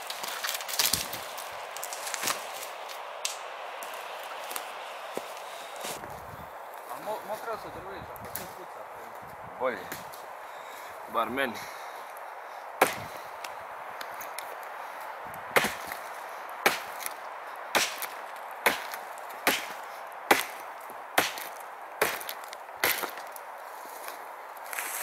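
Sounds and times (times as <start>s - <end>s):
axe chopping log: 12.8s - 13.1s, 15.6s - 16.0s, 16.6s - 20.6s, 21.2s - 23.3s.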